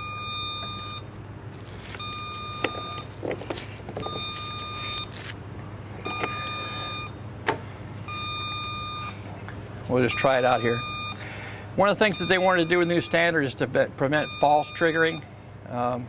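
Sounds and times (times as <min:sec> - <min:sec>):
leak detector beeping: 0:00.0 - 0:01.1, 0:01.9 - 0:03.1, 0:04.0 - 0:05.2, 0:06.0 - 0:07.2, 0:08.1 - 0:09.2, 0:10.0 - 0:11.3, 0:12.0 - 0:13.4, 0:14.1 - 0:15.3.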